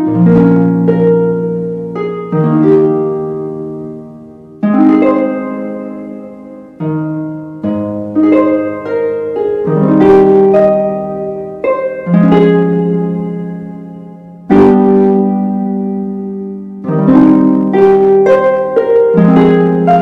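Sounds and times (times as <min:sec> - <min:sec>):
gently plucked music: 0:00.0 - 0:20.0.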